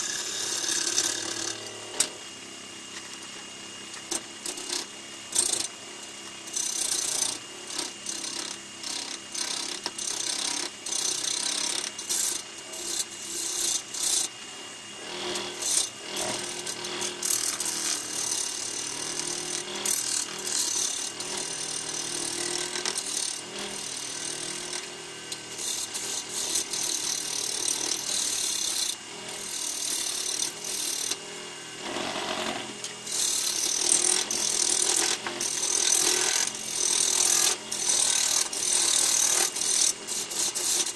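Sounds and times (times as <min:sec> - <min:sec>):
lathe humming: 0:00.0 - 0:02.2, 0:15.0 - 0:40.9
turning tool scraping wood: 0:31.8 - 0:40.9.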